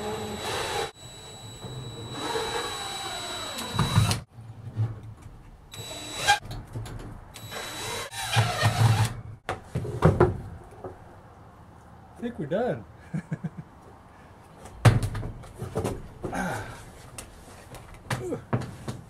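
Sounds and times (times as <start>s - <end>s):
cordless drill driving screws: 0.0s - 4.2s, 5.8s - 6.4s, 7.4s - 9.1s.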